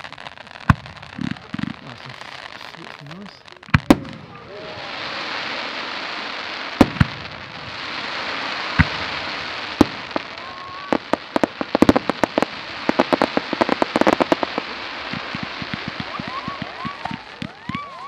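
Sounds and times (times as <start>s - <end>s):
firework cracks and pops: 0.0s - 18.0s
firework fountain hissing: 0.0s - 18.0s
sharp firework bangs: 3.7s - 18.0s.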